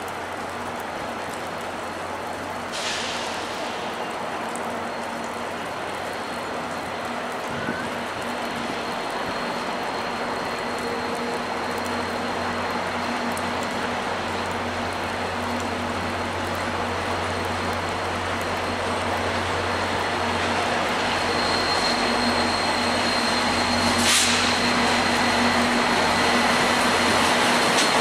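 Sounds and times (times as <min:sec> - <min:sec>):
diesel locomotive engine rumble: 0:00.0 - 0:28.0
brief high hiss: 0:23.8 - 0:24.7.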